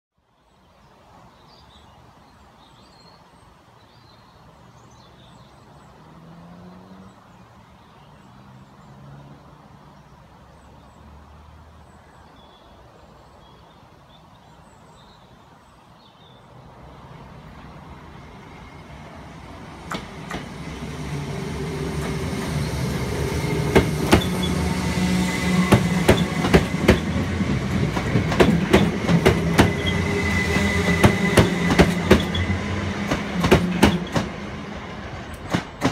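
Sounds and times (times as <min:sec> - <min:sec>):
faint birdsong: 0:00.1 - 0:35.9
electric train passing: 0:16.5 - 0:35.9.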